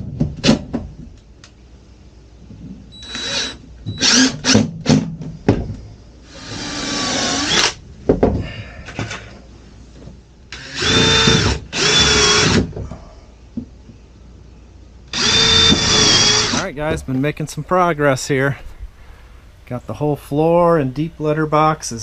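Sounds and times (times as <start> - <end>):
cordless drill driving screws: 3.0 - 4.6, 6.3 - 7.8, 10.5 - 12.7, 15.1 - 16.6.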